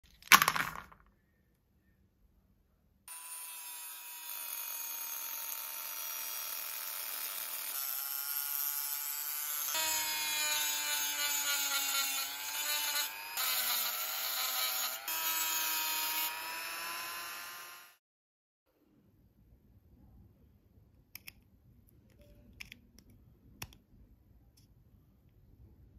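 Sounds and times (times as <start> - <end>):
rotary tool cutting shell: 3.1 - 18.0.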